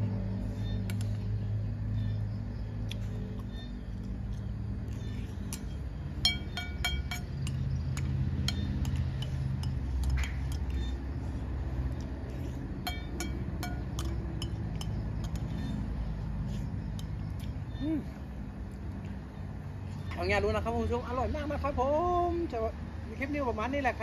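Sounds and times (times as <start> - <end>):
low steady rumble: 0.0 - 22.5
metal spoon clinking on a bowl: 5.5 - 11.0, 12.8 - 15.8.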